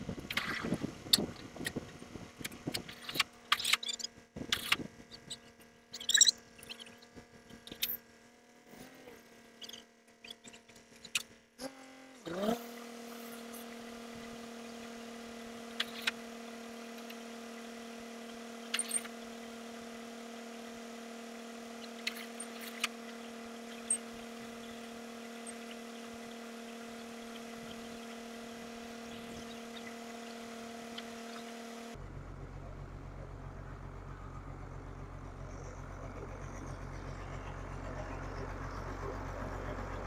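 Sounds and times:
drilling rig engine running: 0:12.2 - 0:40.0.

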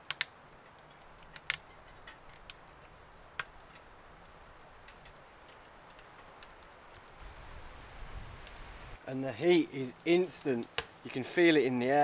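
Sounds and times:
fire crackling in wood stove: 0:00.0 - 0:09.0.

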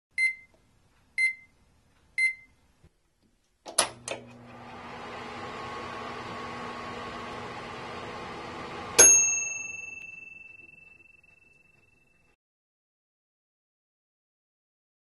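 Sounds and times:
microwave short beeps: 0:00.2 - 0:00.5
microwave oven humming: 0:03.8 - 0:10.8.

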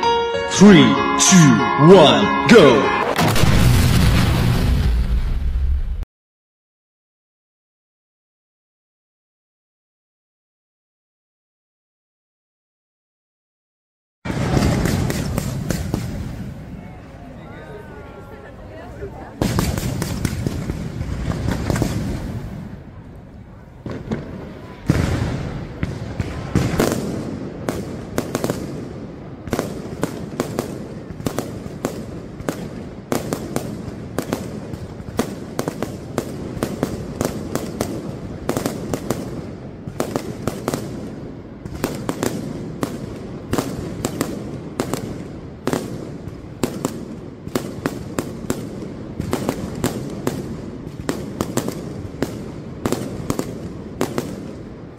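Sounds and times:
fireworks cracking and banging: 0:02.5 - 0:06.0, 0:14.3 - 0:16.9, 0:19.0 - 0:54.9.

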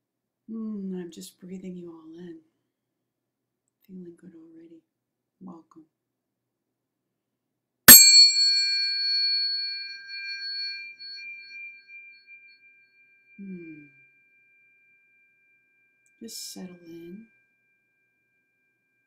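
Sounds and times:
tuning fork strike: 0:07.9 - 0:15.3
tuning fork ringing: 0:07.9 - 0:19.0.

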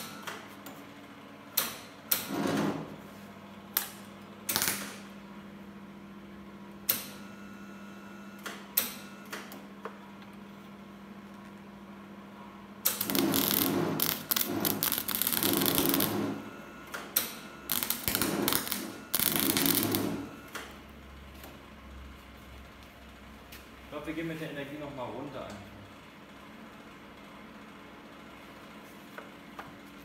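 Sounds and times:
welding arc crackling: 0:03.8 - 0:05.0, 0:12.9 - 0:16.4, 0:17.6 - 0:20.4.

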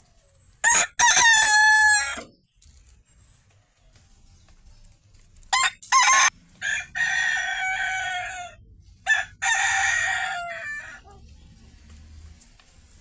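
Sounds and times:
rooster crowing: 0:00.6 - 0:02.2, 0:05.5 - 0:11.1.

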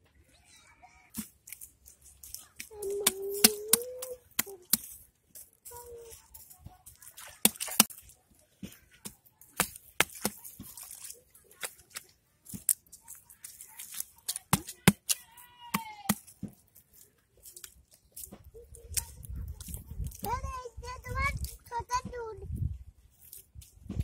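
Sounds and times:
hands slapping wet mud: 0:01.1 - 0:20.4.

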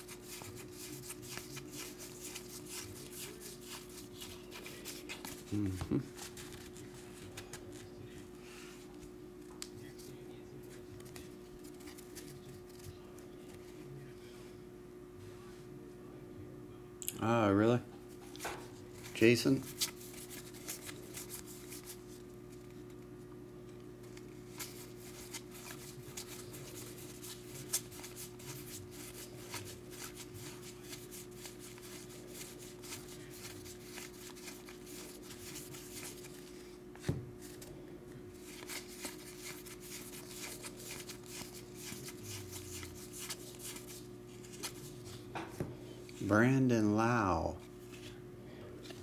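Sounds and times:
steady low hum: 0:00.0 - 0:49.0
cards flicking papery clicks: 0:38.4 - 0:44.8.

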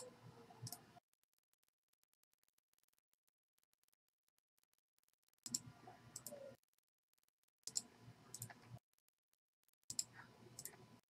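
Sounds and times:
faint computer mouse clicks: 0:00.0 - 0:00.9, 0:05.5 - 0:06.4, 0:07.7 - 0:08.8, 0:09.9 - 0:10.8.

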